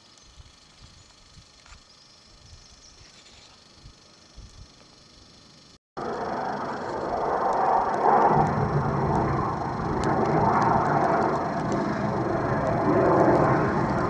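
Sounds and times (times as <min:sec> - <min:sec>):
wind buffeting microphone: 0:06.4 - 0:14.0.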